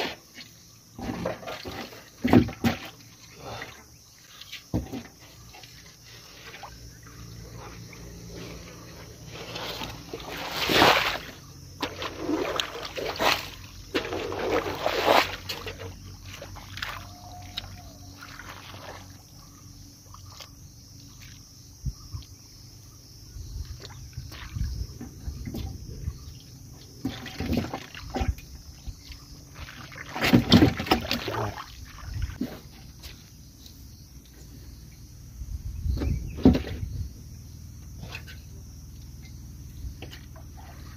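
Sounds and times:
hands splashing in muddy water: 9.4s - 19.2s, 29.1s - 32.5s.

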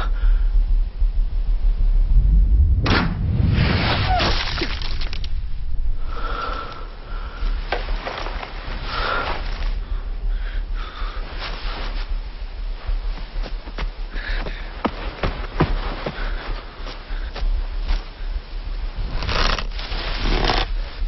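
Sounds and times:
low rumble: 0.0s - 20.0s
rustling movement: 7.3s - 10.2s, 10.9s - 21.0s.

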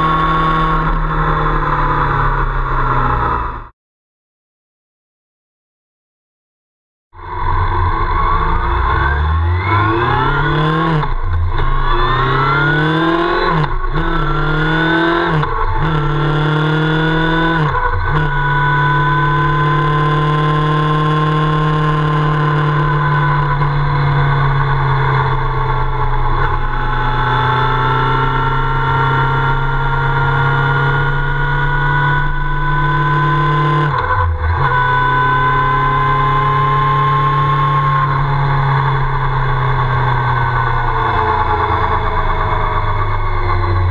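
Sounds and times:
motorcycle engine accelerating: 0.0s - 3.7s, 7.2s - 43.9s.

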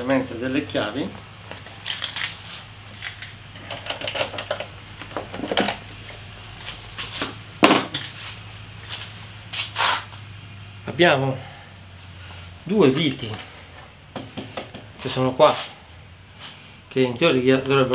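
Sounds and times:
handling clicks and knocks: 1.2s - 6.2s.

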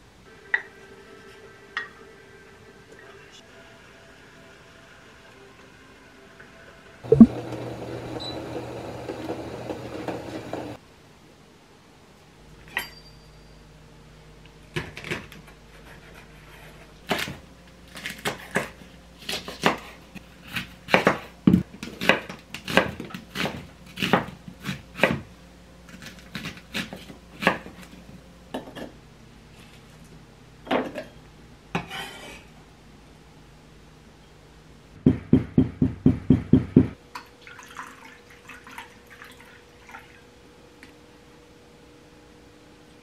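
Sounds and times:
water bubbling in saucepan: 7.1s - 8.0s.

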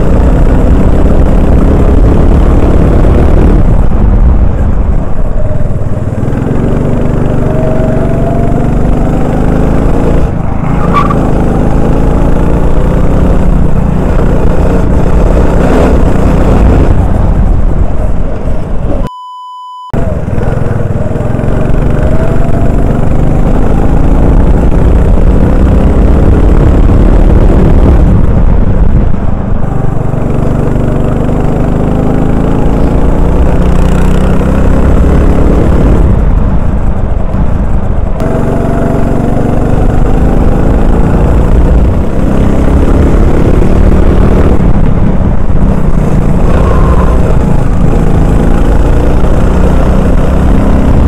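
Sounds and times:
kart engine revving: 5.3s - 17.9s, 20.0s - 28.3s, 29.8s - 36.4s, 38.2s - 51.0s.

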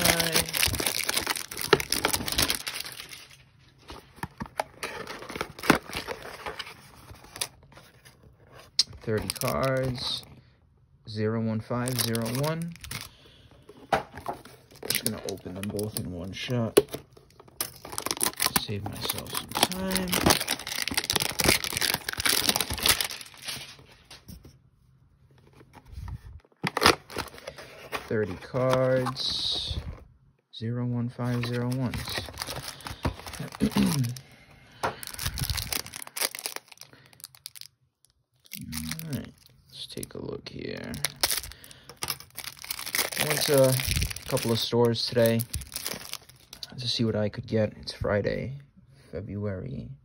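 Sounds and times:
plastic crinkles and clicks: 0.0s - 3.3s, 34.8s - 39.5s, 40.9s - 46.7s
rustling cardboard and plastic wrap: 0.0s - 10.2s, 11.7s - 24.3s, 25.4s - 29.8s, 31.2s - 37.7s, 40.8s - 46.6s.

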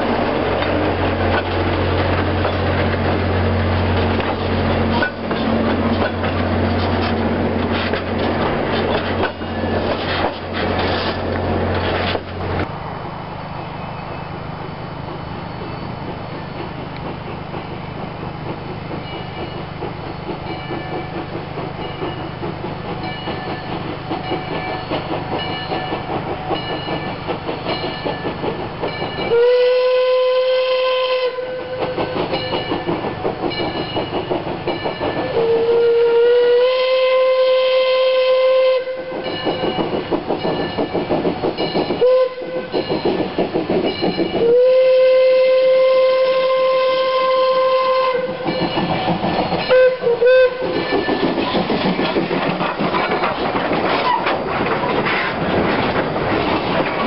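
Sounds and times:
steam locomotive exhaust chuffs: 0.0s - 12.8s, 13.4s - 57.0s
steam whistle blasts: 29.3s - 32.2s, 35.3s - 39.3s, 42.0s - 42.8s, 44.4s - 48.6s, 49.7s - 50.8s.

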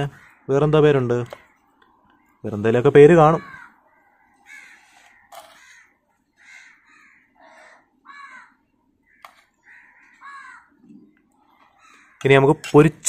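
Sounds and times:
crows cawing: 0.0s - 12.8s.

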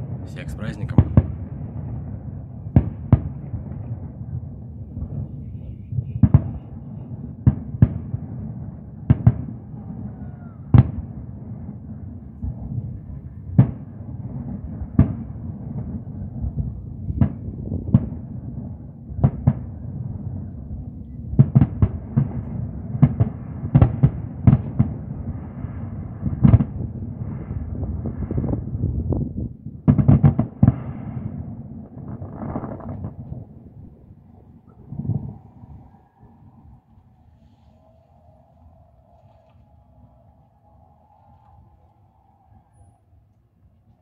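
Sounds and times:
steady low rumble: 0.0s - 9.9s, 30.5s - 44.0s.

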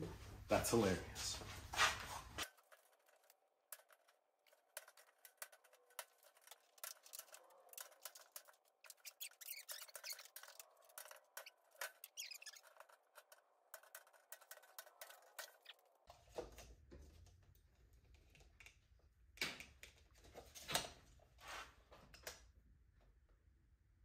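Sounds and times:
wire mesh rustling: 1.8s - 16.0s.

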